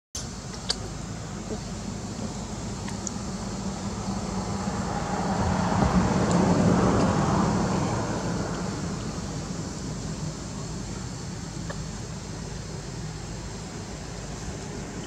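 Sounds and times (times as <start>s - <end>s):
vehicle passing by: 3.2s - 10.8s.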